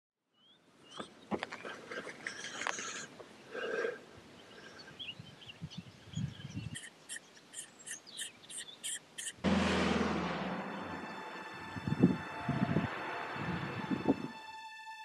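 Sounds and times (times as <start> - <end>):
small birds chirping: 0.3 - 9.4
short high repeated bird calls: 6.7 - 9.4
loud rushing noise with hum: 9.4 - 14.3.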